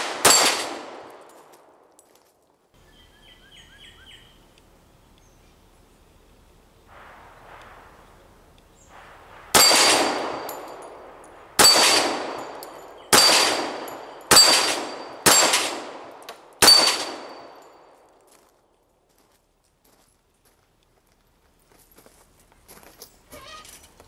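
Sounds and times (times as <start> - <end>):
pistol shots: 0.0 - 1.5, 8.9 - 17.7.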